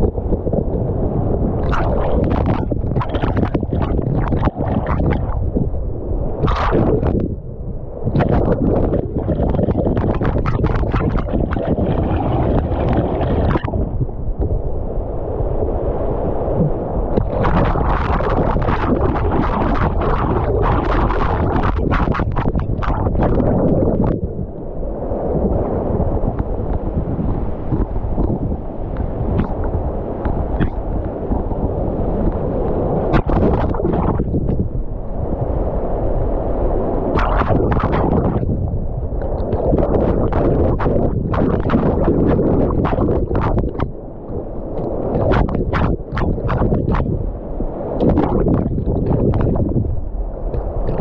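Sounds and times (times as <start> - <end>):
floodwater churning and splashing: 1.6 - 5.5, 6.4 - 7.1, 8.0 - 14.5, 15.9 - 24.2, 25.0 - 51.0.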